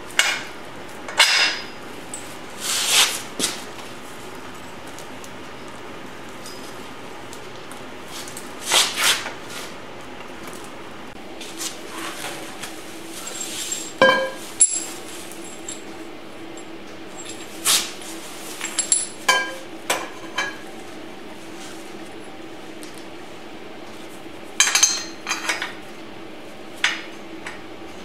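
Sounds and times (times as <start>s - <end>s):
metal clanks and clinks: 13.3s - 15.9s
ringing metal clang: 14.0s - 14.9s.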